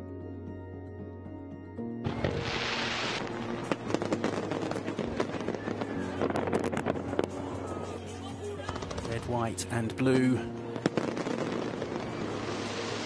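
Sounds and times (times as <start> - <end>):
firework hiss: 2.1 - 9.2, 10.8 - 13.0
firework bangs: 2.1 - 9.3, 10.7 - 13.0
fireworks crackling: 2.1 - 13.0.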